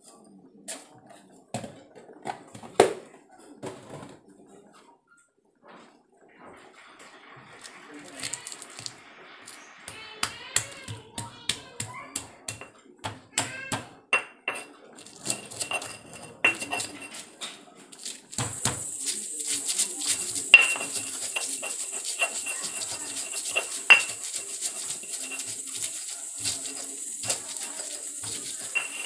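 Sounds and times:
pestle grinding on rough stone: 0:18.3 - 0:29.0.

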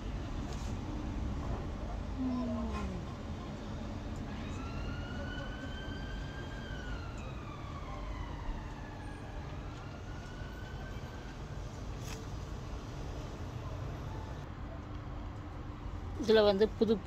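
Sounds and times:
emergency vehicle siren wailing: 0:04.0 - 0:11.7.

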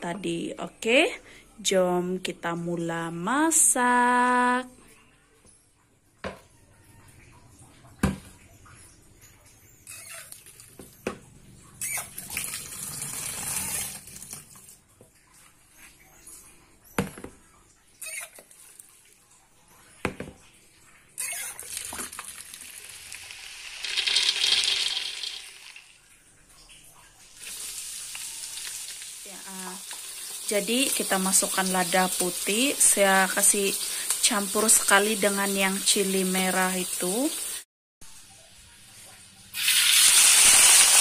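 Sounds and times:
water running in a sink: 0:11.8 - 0:41.0
oil frying in a wok: 0:21.2 - 0:26.0, 0:27.3 - 0:37.6, 0:38.5 - 0:41.0.

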